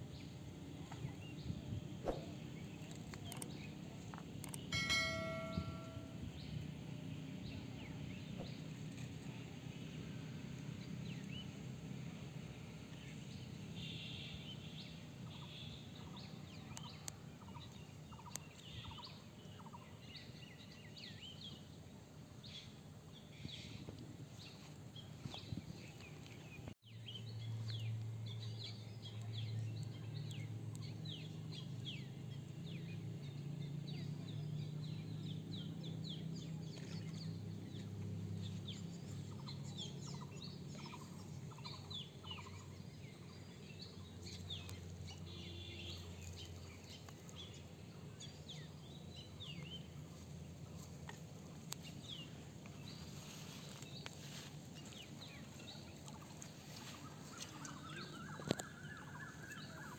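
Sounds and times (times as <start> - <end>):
low steady hum: 0.0 - 8.2
small birds chirping: 12.8 - 59.9.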